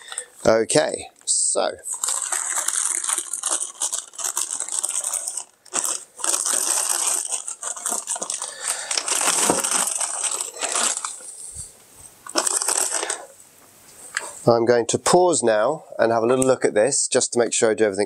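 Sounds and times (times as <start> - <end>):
plastic bag crinkling: 1.3 - 13.4.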